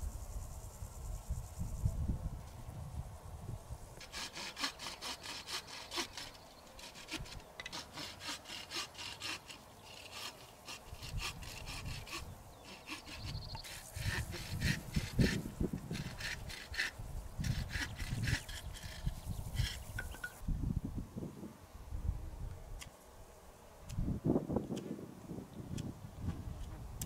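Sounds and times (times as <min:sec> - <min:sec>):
hand saw cutting wood: 0:04.0 - 0:20.3.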